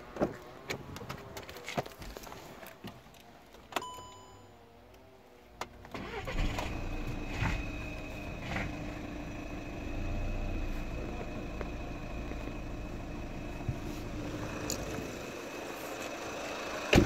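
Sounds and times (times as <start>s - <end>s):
diesel engine cranking and idling: 5.7s - 17.0s.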